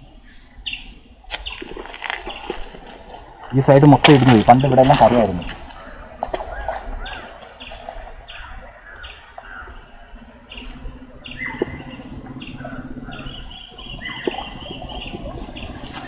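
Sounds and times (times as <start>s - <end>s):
birds chirping: 0.0s - 16.0s
low falling bird notes: 0.0s - 16.0s
rapid bird trill: 4.5s - 16.0s.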